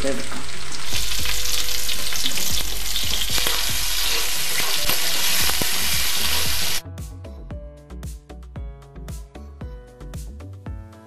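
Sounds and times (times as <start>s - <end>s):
food sizzling in oil: 0.0s - 6.8s
background music: 1.0s - 11.0s.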